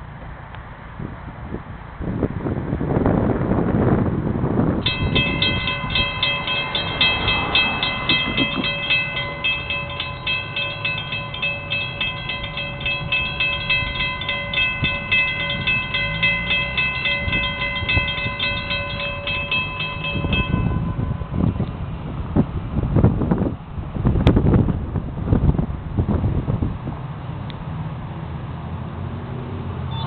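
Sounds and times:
freight train approaching: 0:03.9 - 0:24.2
crossing warning bell ringing: 0:04.8 - 0:22.4.

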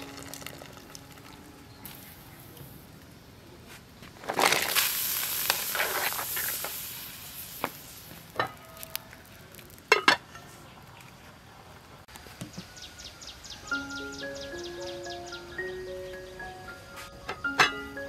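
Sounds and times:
hissing splash in boiling water: 0:04.4 - 0:08.4.

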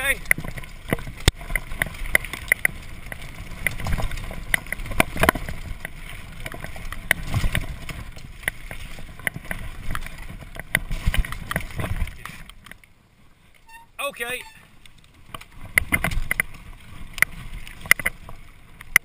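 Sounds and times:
bike knocks and rattles: 0:00.0 - 0:12.4
bike tyres on dirt and gravel: 0:00.0 - 0:19.0.

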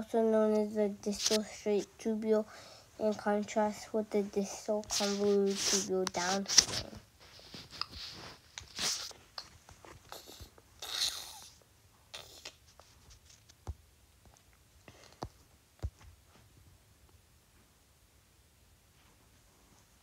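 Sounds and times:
tablet handling rustles: 0:01.0 - 0:01.8, 0:04.2 - 0:10.1.

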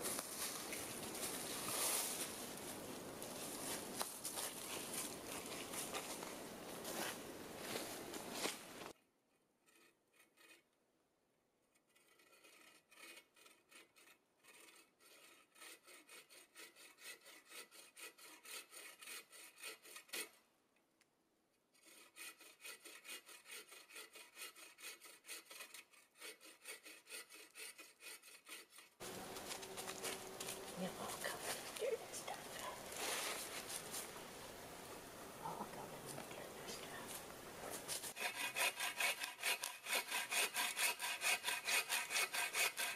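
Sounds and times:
hand saw cutting wood: 0:09.6 - 0:10.7, 0:11.8 - 0:20.4, 0:21.7 - 0:30.6, 0:37.8 - 0:42.9.

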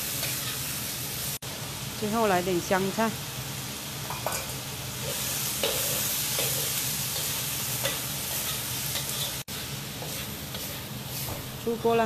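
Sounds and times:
metal spatula scraping a wok: 0:00.0 - 0:00.9, 0:04.1 - 0:11.5
squid sizzling in a wok: 0:00.0 - 0:12.0.

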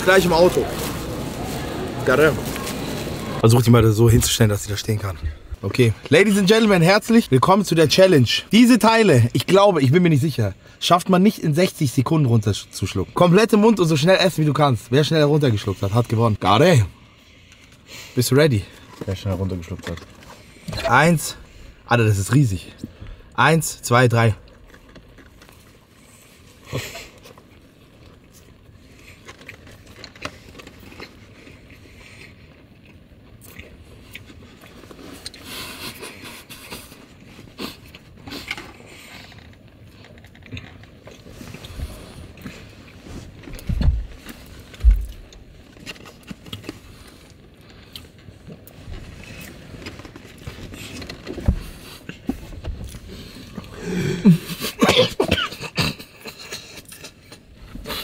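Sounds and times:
people chewing: 0:00.0 - 0:07.2, 0:15.4 - 0:21.9, 0:24.2 - 0:58.0
rustling movement: 0:00.0 - 0:07.2, 0:34.2 - 0:54.8
muffled coughs and throat noises: 0:26.6 - 0:27.4, 0:53.5 - 0:58.0.

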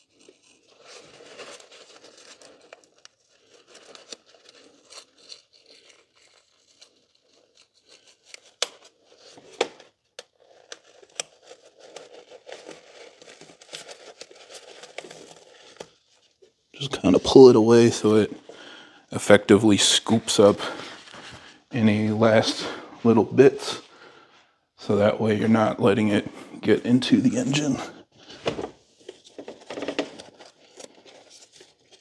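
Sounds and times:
paper crinkling and rustling: 0:00.0 - 0:18.8, 0:27.3 - 0:32.0.

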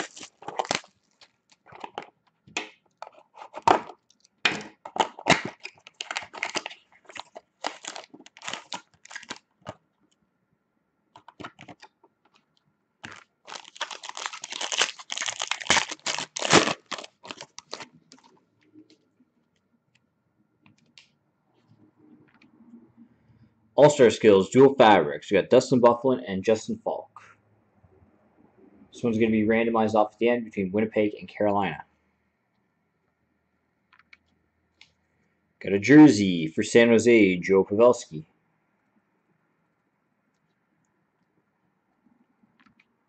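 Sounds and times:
foil wrapper tearing: 0:00.0 - 0:01.4, 0:05.0 - 0:09.4, 0:13.0 - 0:17.9
packaging crinkling and tearing: 0:00.0 - 0:02.0, 0:03.0 - 0:09.8, 0:13.0 - 0:18.3.

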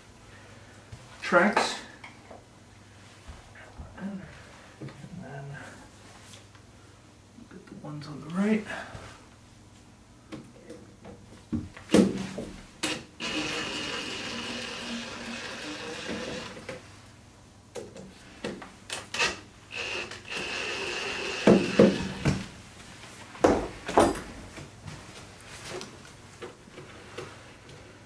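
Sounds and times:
cordless drill motor running: 0:12.9 - 0:16.7, 0:19.0 - 0:22.4.

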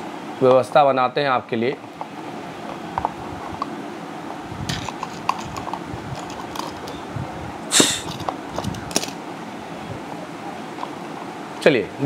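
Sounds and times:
plastic handling clicks and rubbing: 0:04.7 - 0:07.0
loud scrape: 0:07.7 - 0:08.1.

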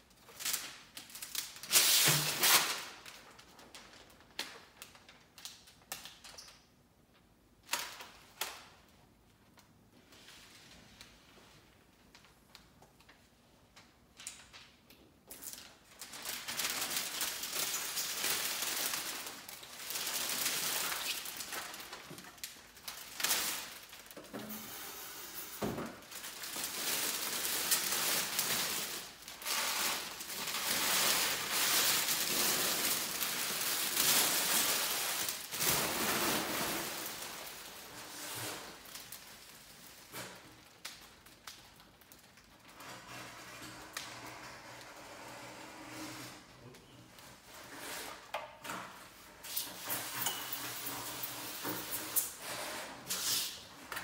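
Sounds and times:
plastic film rustling and crinkling: 0:00.0 - 0:06.4, 0:07.6 - 0:24.6, 0:25.9 - 0:43.0.

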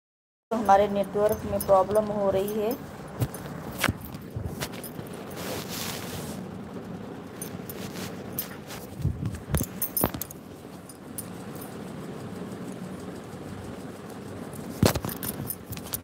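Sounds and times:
sharp clicks and knocks: 0:14.6 - 0:16.0
phone handling rustling: 0:14.8 - 0:16.0.

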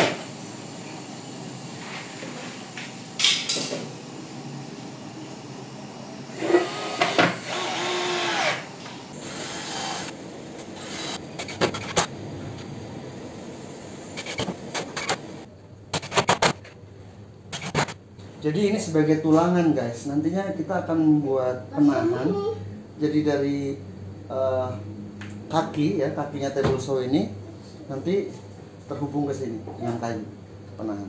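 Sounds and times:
cordless drill driving screw: 0:06.5 - 0:10.1, 0:10.8 - 0:11.2.

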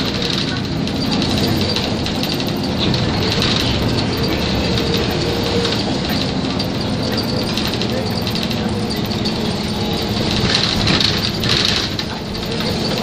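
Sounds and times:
bus engine and road noise: 0:00.0 - 0:13.0.

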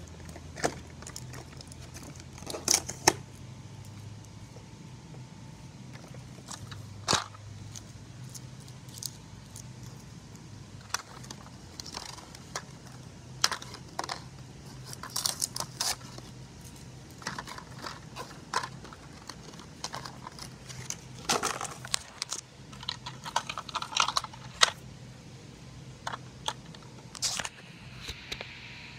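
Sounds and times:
rustling packaging: 0:00.0 - 0:04.1, 0:05.9 - 0:24.8
cardboard packaging handled: 0:10.8 - 0:24.7
clicks and scrapes: 0:10.8 - 0:24.8, 0:26.0 - 0:28.5.

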